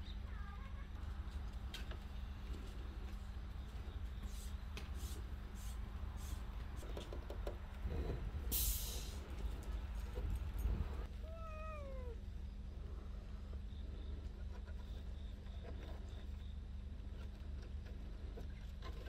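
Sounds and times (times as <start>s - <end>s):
low background rumble: 0.0s - 19.0s
brief hiss: 8.5s - 9.2s
cat meowing: 11.2s - 12.2s.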